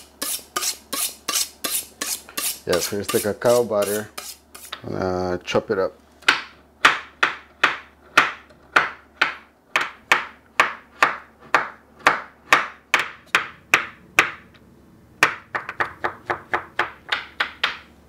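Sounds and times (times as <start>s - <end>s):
knife chopping on wooden board: 6.2s - 14.4s.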